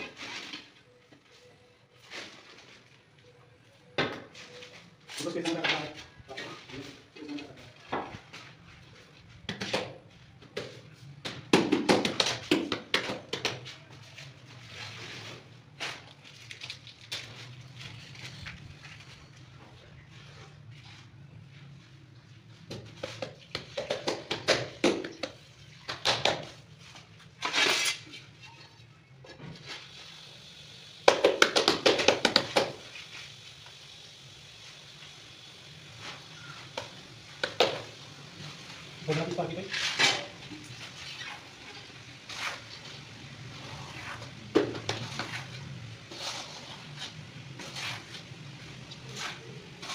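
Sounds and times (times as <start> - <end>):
hands tapping wall tile: 9.5 - 13.8, 22.7 - 26.6, 31.1 - 32.8.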